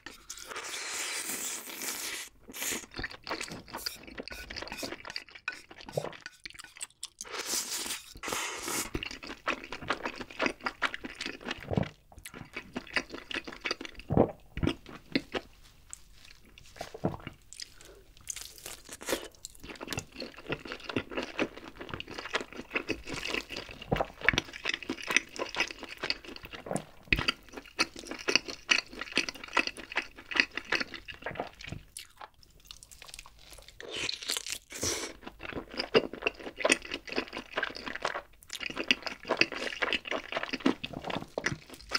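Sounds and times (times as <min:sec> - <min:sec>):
chewing grilled chicken: 0:00.0 - 0:41.9
man slurping from ladle: 0:00.2 - 0:09.1.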